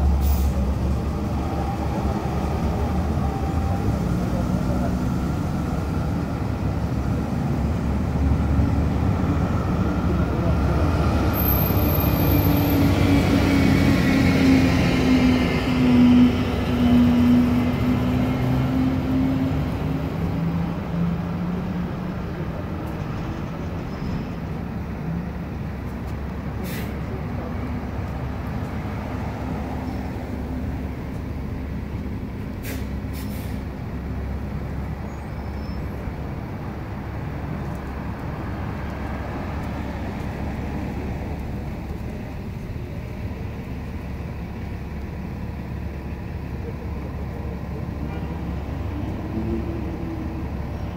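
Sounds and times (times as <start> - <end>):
heavy truck engine driving past: 0.0 - 25.4
street traffic hum: 0.0 - 50.9.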